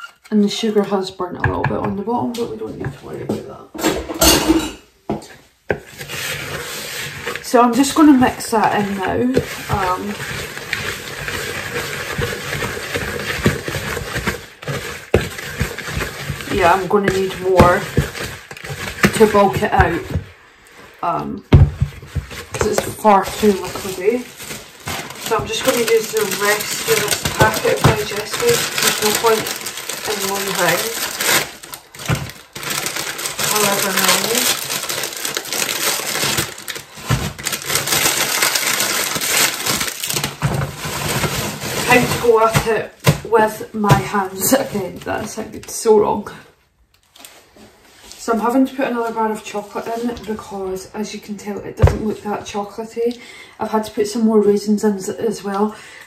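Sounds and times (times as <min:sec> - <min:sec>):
spoon scraping in bowl: 0:05.7 - 0:20.2, 0:21.8 - 0:29.5
plastic packaging crinkling: 0:05.8 - 0:20.3, 0:21.6 - 0:45.9, 0:46.9 - 0:48.2.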